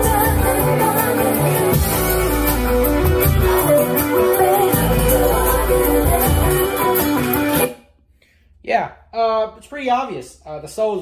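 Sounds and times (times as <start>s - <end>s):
music with bass line from speaker: 0.0s - 7.8s.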